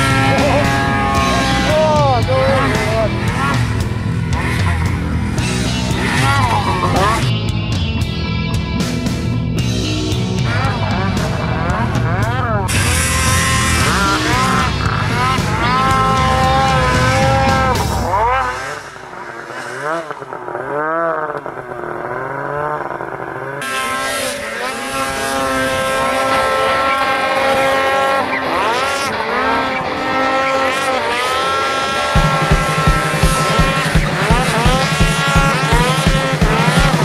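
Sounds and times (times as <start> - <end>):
snowmobile engine revving: 0.0 - 37.0
regular low beat: 32.2 - 37.0.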